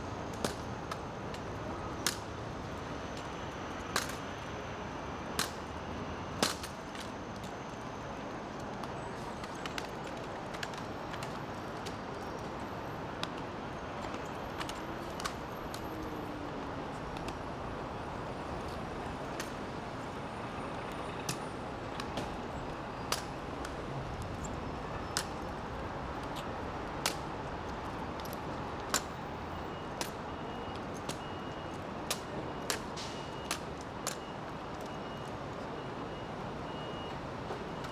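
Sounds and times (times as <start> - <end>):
traffic: 0.0 - 37.9
rifles clacking on pavement: 3.9 - 4.3, 8.6 - 12.6, 20.8 - 35.0.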